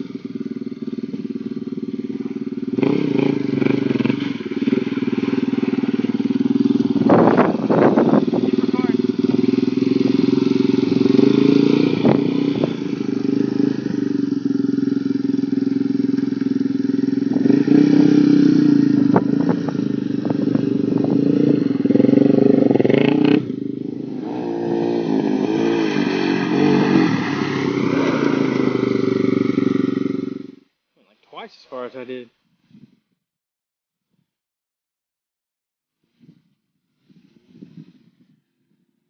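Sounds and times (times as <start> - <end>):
atv engine revving: 0.0 - 30.7.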